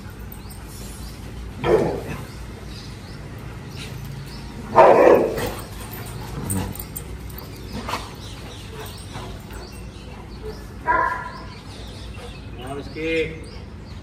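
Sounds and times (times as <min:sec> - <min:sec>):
dog barking: 0:04.7 - 0:05.5, 0:10.8 - 0:11.5.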